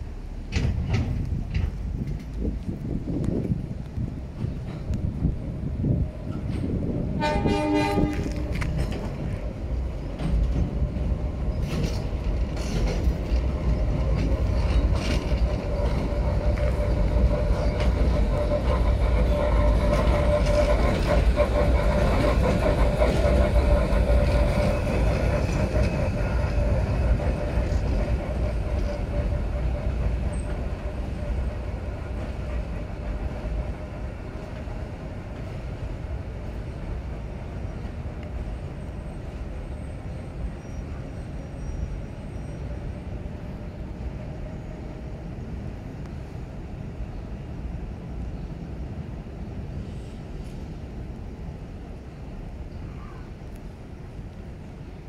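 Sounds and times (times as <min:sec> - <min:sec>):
locomotive rumble: 0:00.0 - 0:55.0
wheels clicking over rail joints: 0:00.3 - 0:40.6.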